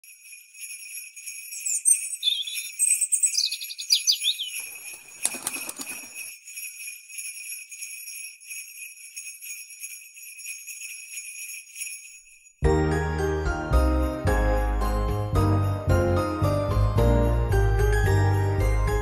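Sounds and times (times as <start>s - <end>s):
jingle bells shaking: 0.0s - 13.3s.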